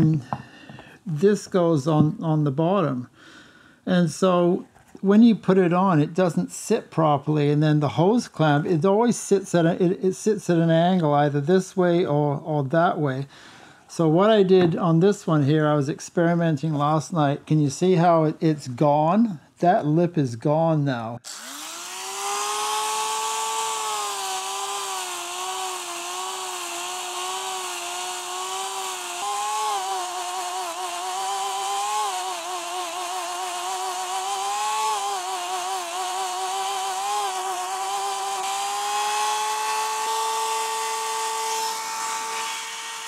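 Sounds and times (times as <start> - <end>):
die grinder whining: 21.2 - 43.0.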